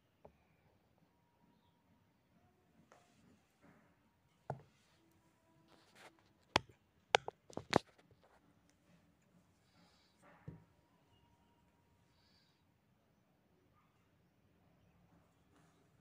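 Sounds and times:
sharp taps: 6.5 - 7.9.

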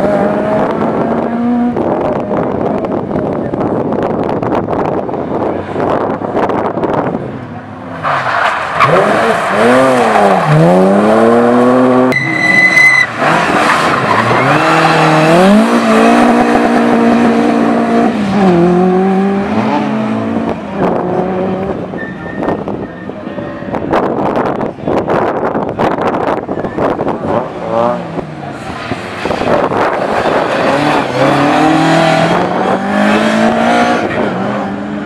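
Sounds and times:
car engine revving: 8.2 - 22.8, 26.7 - 35.0
tyre squeal: 12.1 - 15.0, 21.9 - 23.2.

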